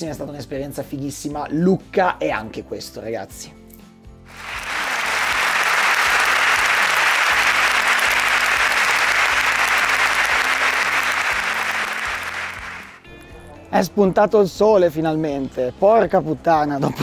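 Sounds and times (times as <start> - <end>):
audience applauding: 4.3 - 13.0.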